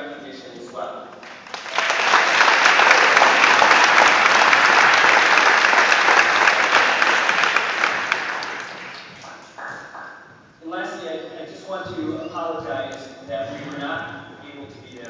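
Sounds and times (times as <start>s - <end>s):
audience applauding: 1.2s - 10.3s.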